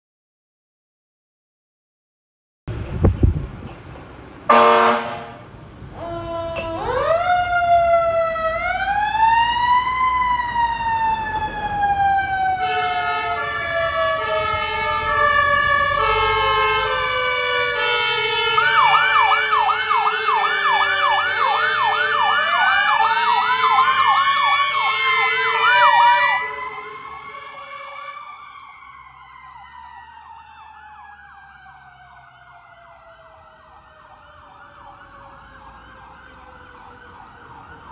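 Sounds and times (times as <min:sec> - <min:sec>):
two-tone horns: 0:04.5 - 0:06.8, 0:12.6 - 0:22.2
fast sweeping siren: 0:06.1 - 0:37.9.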